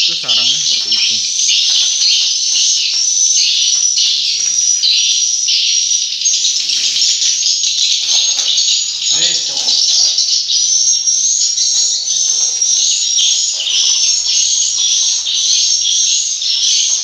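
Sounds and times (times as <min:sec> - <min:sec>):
swiftlets twittering: 0:00.0 - 0:05.5.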